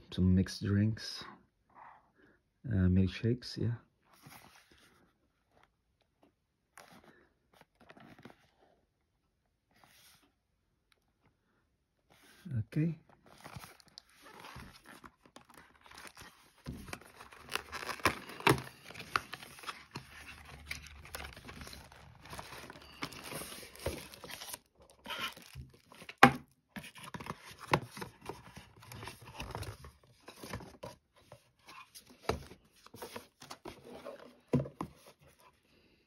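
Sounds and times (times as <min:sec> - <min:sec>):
plastic and cardboard rustling: 0:04.2 - 0:08.8, 0:12.1 - 0:35.6.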